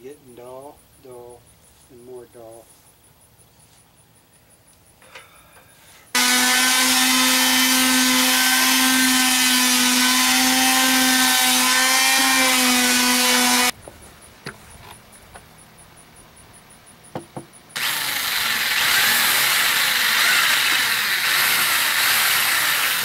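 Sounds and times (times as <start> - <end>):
electric sander running: 6.2 - 13.7, 17.8 - 23.0.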